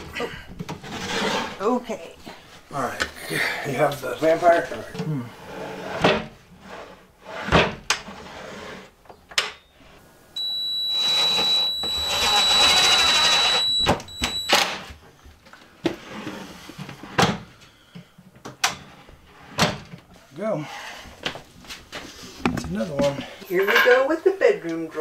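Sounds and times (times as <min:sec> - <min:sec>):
cordless drill driving screw: 0:11.0 - 0:13.8.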